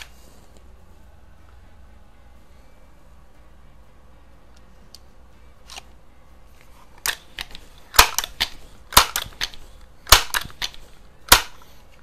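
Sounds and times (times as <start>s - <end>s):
air rifle being pumped: 7.0s - 12.0s.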